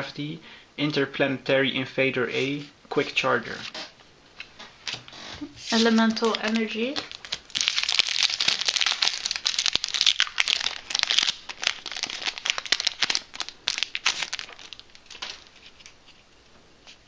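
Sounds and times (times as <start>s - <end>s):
foil wrapper crinkling and tearing: 4.8s - 16.2s.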